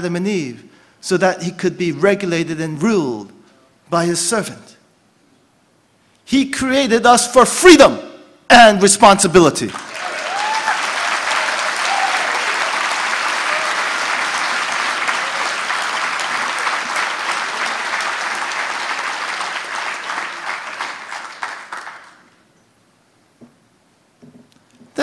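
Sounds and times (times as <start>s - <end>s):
audience clapping: 9.6s - 22.4s.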